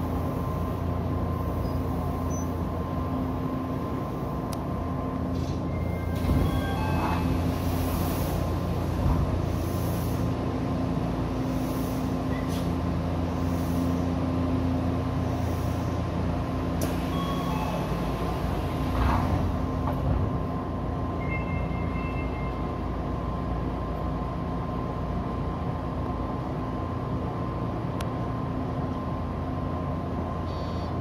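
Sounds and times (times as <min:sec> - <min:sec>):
train electrical hum: 0:00.0 - 0:31.0
electronic chime tones: 0:21.2 - 0:22.6.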